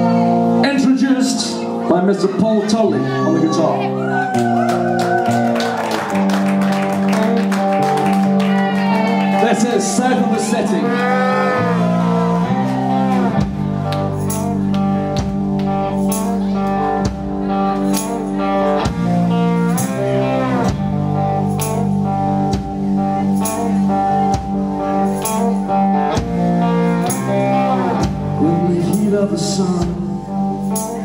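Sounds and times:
bass: 0.0 - 31.0
electric guitar lead: 0.0 - 31.0
drums keeping a steady beat: 11.8 - 31.0.

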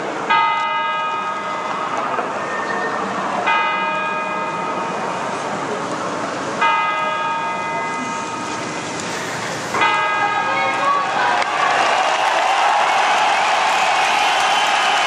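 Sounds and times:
murmur of outdoor crowd: 0.0 - 11.7
large bell ringing: 0.3 - 2.5, 3.4 - 5.2, 6.6 - 8.7, 9.8 - 11.0.

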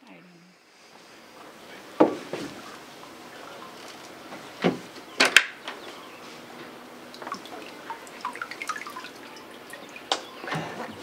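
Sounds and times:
sharp knocks: 2.0 - 2.6.

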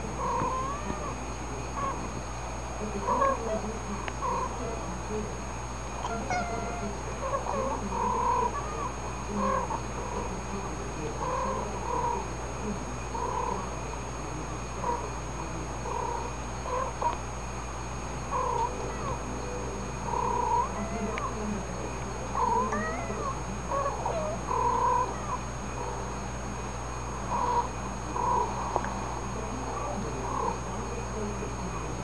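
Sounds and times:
faint steady hum: 0.0 - 32.0
cats meowing and chirping: 6.0 - 8.9, 20.1 - 21.4, 22.4 - 25.5.

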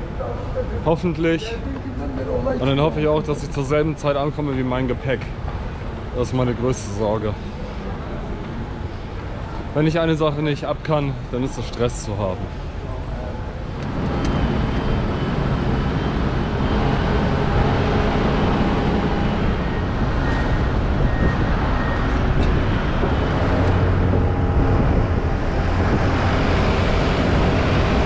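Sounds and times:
rumble of aircraft and vehicles: 0.0 - 28.0
faint high whine: 12.5 - 28.0.

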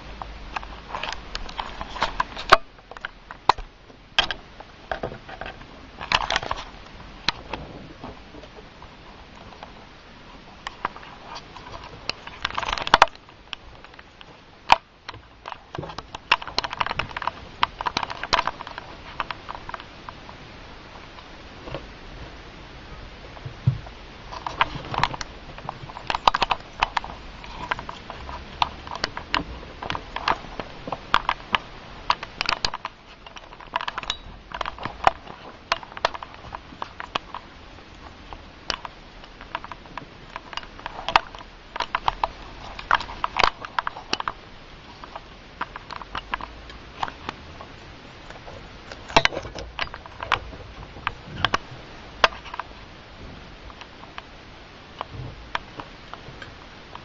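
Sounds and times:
guinea pigs crunching vegetables: 0.0 - 22.2, 23.2 - 57.0.

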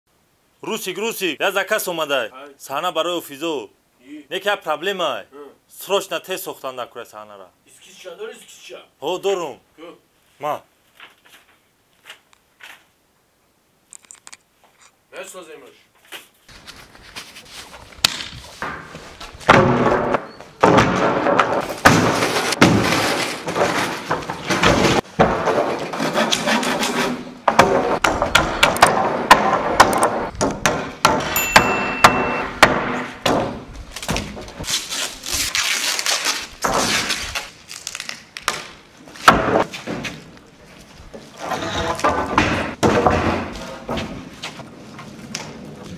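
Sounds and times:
wooden boards clattering: 18.6 - 31.4, 41.1 - 44.6
hammer hitting nails: 27.5 - 34.3.

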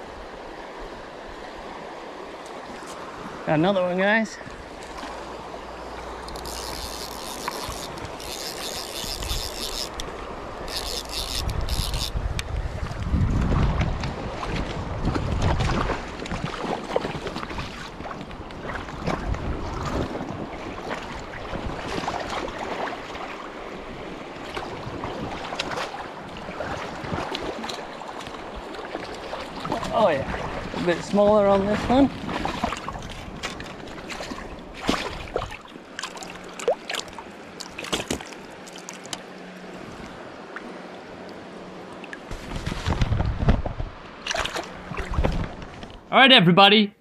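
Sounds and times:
stream running over gravel: 2.4 - 23.6, 24.4 - 39.2
stream water rushing over stones: 21.0 - 39.2.

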